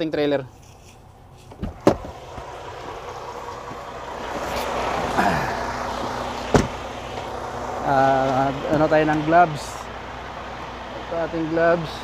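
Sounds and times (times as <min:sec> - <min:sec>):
wind outdoors: 0:00.0 - 0:12.0
truck door clicks: 0:01.5 - 0:02.5, 0:06.4 - 0:07.3.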